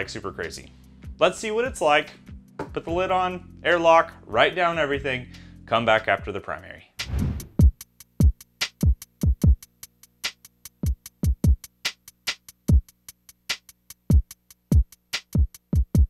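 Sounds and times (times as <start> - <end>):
electronic music with drum-machine beat: 7.5 - 16.0.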